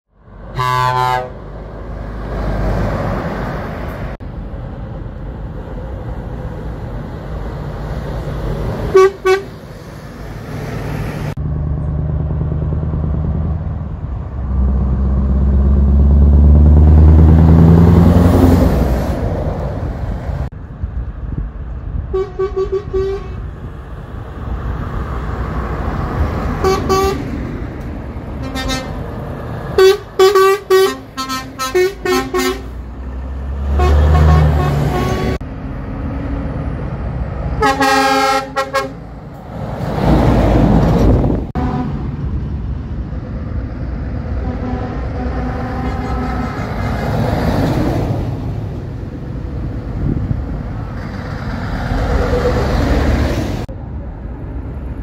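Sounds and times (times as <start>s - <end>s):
diesel truck engines: 0.1s - 55.0s
truck air horn blasts: 0.5s - 1.5s, 8.9s - 9.6s, 22.1s - 23.5s, 26.6s - 27.3s, 28.4s - 29.0s, 29.8s - 32.8s, 33.7s - 35.4s, 37.6s - 39.0s, 41.6s - 42.0s, 44.4s - 46.9s.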